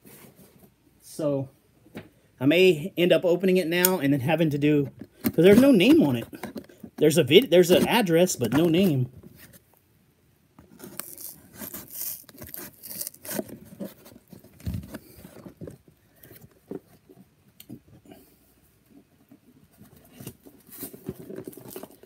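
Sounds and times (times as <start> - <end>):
cardboard box scraping and rustling: 10.7 - 15.9.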